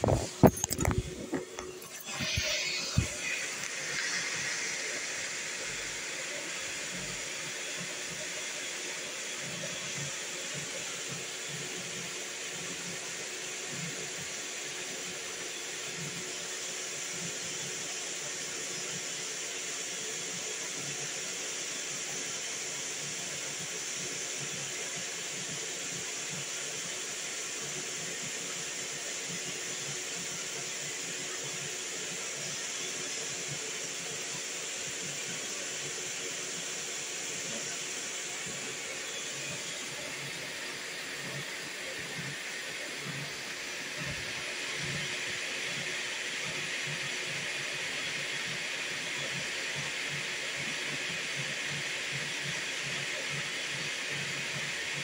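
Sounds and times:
printer hum: 0:00.0 - 0:10.1
cooling fans rushing: 0:00.0 - 0:11.8.

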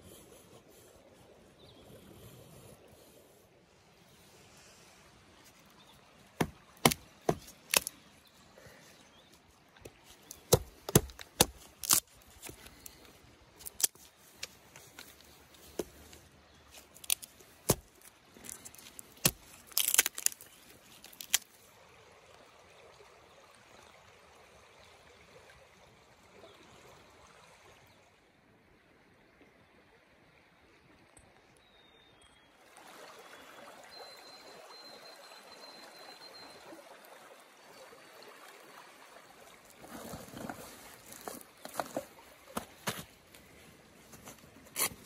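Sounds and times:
knife chopping dry stick: 0:06.4 - 0:07.9, 0:10.3 - 0:12.6, 0:17.0 - 0:20.4.

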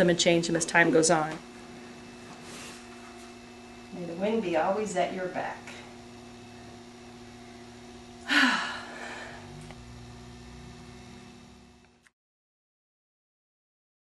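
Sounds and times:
electrical hum: 0:00.0 - 0:12.1
woman sighing: 0:08.2 - 0:09.6.

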